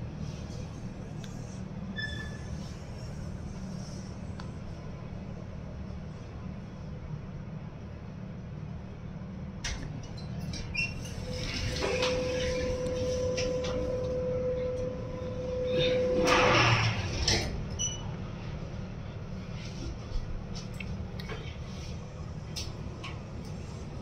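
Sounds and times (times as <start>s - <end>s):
low hum: 0.0s - 24.0s
elevator doors sliding: 9.7s - 18.6s
steady tone: 12.2s - 17.2s.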